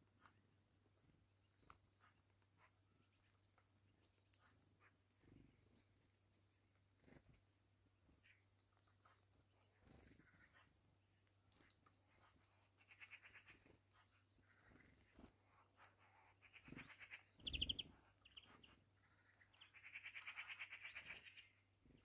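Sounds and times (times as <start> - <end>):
high-pitched bird calls: 15.6 - 21.6.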